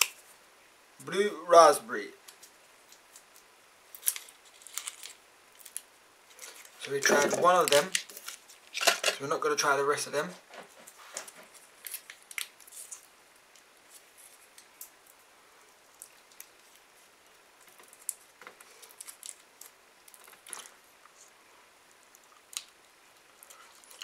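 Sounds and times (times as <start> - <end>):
plastic wrapper crinkling: 2.3 - 9.3, 11.0 - 15.2, 17.6 - 20.8.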